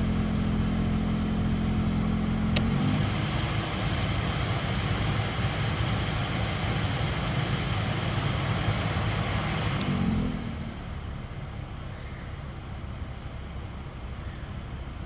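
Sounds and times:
heater blower running: 2.4 - 9.9
fan-speed switch click: 2.5 - 2.8.

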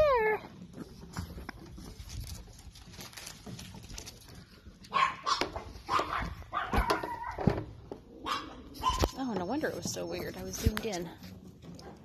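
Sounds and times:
puppies barking: 4.9 - 7.5, 8.2 - 9.1.

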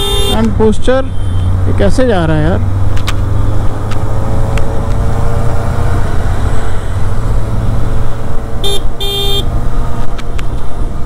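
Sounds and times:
vehicle horn toots: 0.0 - 0.5, 8.6 - 9.5.

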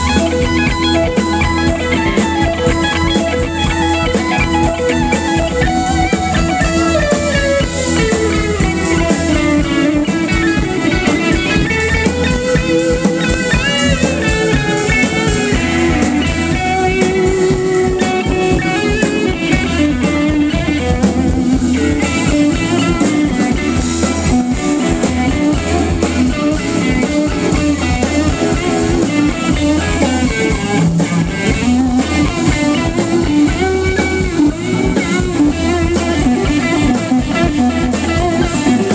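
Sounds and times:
drum beat: 0.0 - 38.9
electric guitar: 0.0 - 38.9
keyboard: 0.0 - 38.9.

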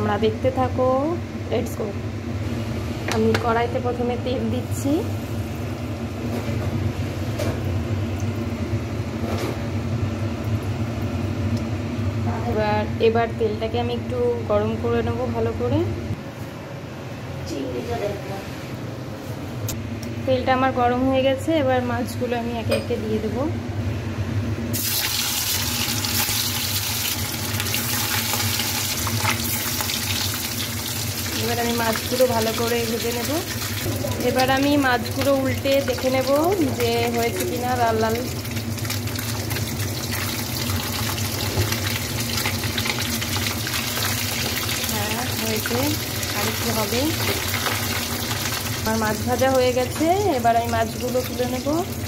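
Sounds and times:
low mechanical hum with hiss: 0.0 - 52.0
fish sizzling in hot oil: 24.7 - 52.0.

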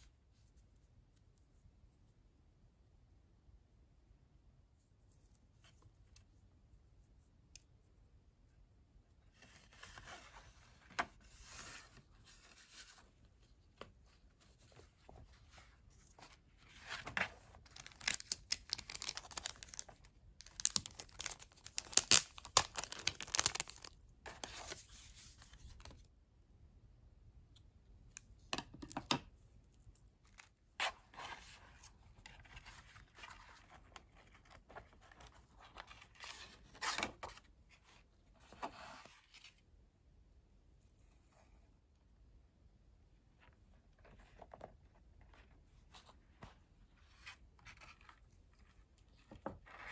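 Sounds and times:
plastic packaging rustling and tearing: 17.4 - 24.8.

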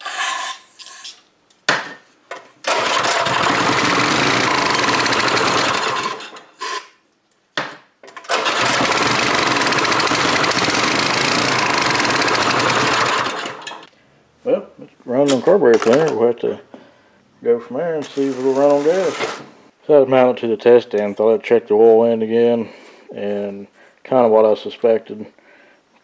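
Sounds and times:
small engine running: 2.7 - 6.4, 8.3 - 13.9.

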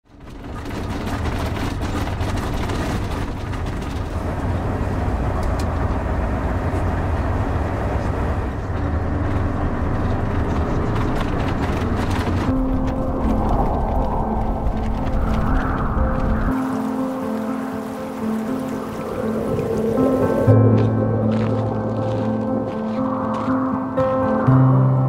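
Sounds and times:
rattles and knocks: 0.0 - 5.0, 8.6 - 13.9
road noise: 0.0 - 25.0
bus engine drone: 0.1 - 25.0.

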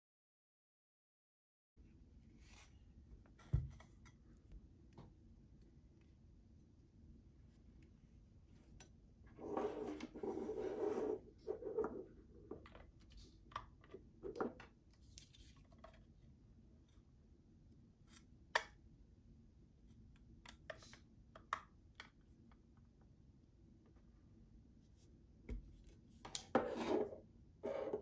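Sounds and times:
rustling scrape: 9.4 - 12.1.

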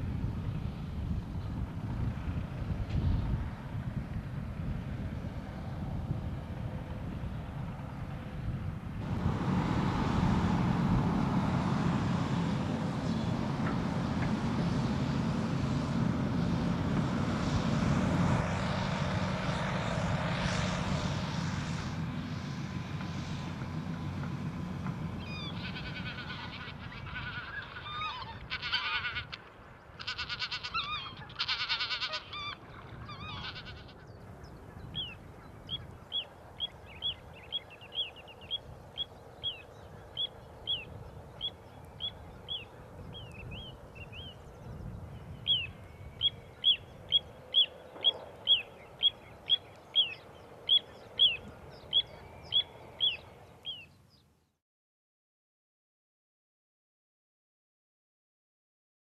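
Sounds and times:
excavator diesel engine humming: 0.0 - 53.9
birds honking harshly: 25.1 - 44.5, 45.4 - 53.8.

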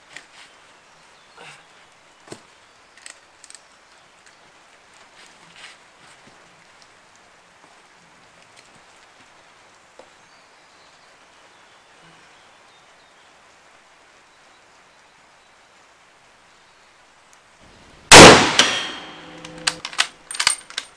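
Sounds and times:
light rain hissing: 0.0 - 20.9
faint clicks: 2.9 - 5.1, 19.2 - 20.9.

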